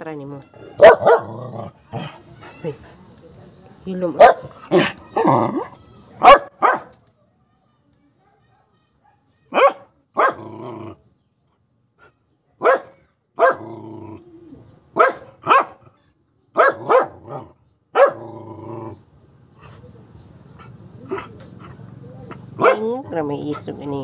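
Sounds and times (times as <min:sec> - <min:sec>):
dog barking: 0:00.8 - 0:01.4, 0:04.2 - 0:06.9, 0:08.2 - 0:10.4, 0:12.6 - 0:13.7, 0:15.0 - 0:15.8, 0:16.6 - 0:18.3, 0:22.3 - 0:23.0.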